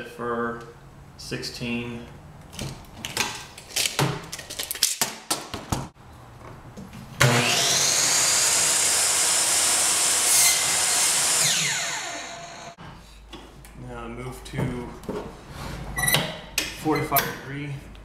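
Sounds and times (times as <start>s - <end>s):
miter saw motor whining: 7.2s - 12.8s
saw blade cutting wood: 7.2s - 12.8s.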